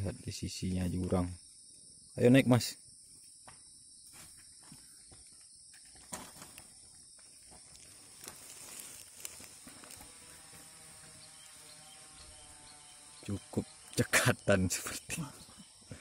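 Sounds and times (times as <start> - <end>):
insects droning: 0.0 - 16.0
scrapes and knocks on tree trunk: 3.4 - 11.2.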